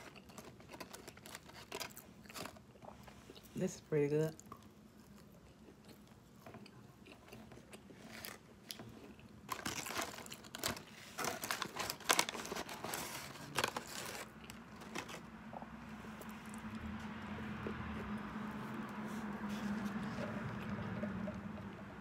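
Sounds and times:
paper wrapper crinkling: 0.0s - 2.7s, 9.5s - 15.3s
quiet chewing: 0.0s - 3.6s, 4.3s - 22.0s.

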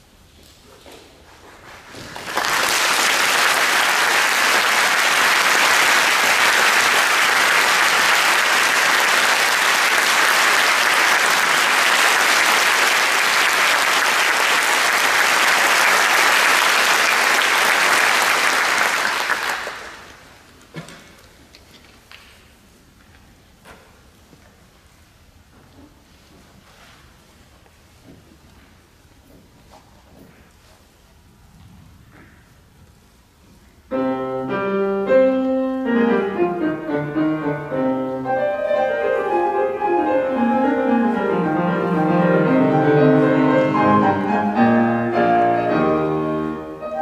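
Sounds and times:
audience applauding: 1.9s - 20.4s.

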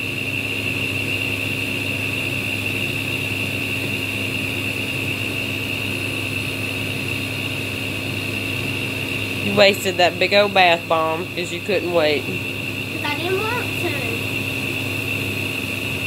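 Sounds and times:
fan humming: 0.0s - 16.0s
high even whine: 8.3s - 16.0s.

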